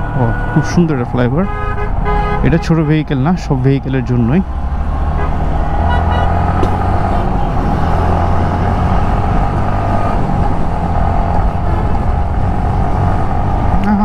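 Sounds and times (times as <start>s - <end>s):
road noise: 0.0s - 14.0s
wind noise: 4.5s - 14.0s.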